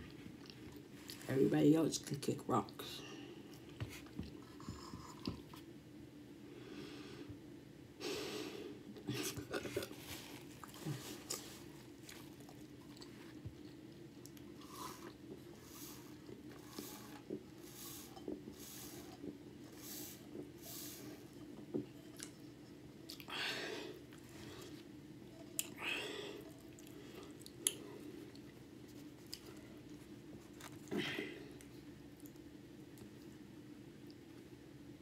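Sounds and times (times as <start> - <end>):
chewing with wet mouth clicks: 10.6 - 15.3, 23.0 - 23.3.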